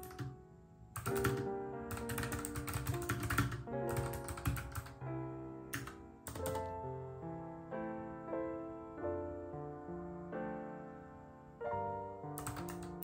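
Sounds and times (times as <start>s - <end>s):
fast typing on keyboard: 0.0s - 0.4s, 1.0s - 5.0s, 5.7s - 6.8s, 12.4s - 13.0s
background music: 0.0s - 13.0s.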